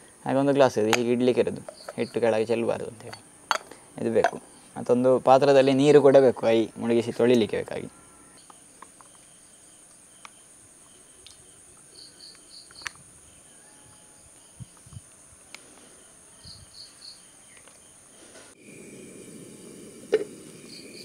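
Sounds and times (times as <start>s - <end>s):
high-pitched insect chorus: 0.0s - 21.0s.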